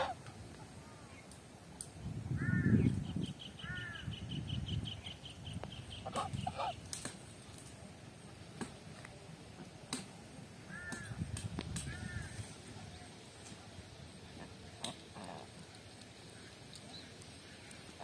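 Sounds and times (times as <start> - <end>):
bird calls: 2.4 - 6.8.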